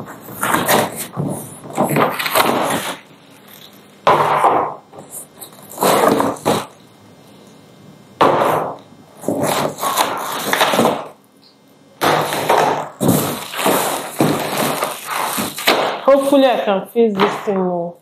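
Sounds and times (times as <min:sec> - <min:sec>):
cardboard rustling and scraping: 0:00.0 - 0:03.7, 0:05.0 - 0:06.7, 0:09.2 - 0:11.0, 0:12.3 - 0:15.8
plastic crinkling: 0:12.3 - 0:16.4.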